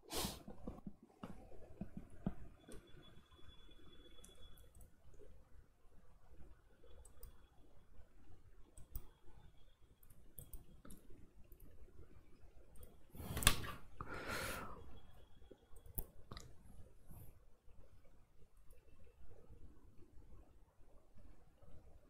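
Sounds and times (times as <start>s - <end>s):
faint clicks: 10.0s - 11.8s.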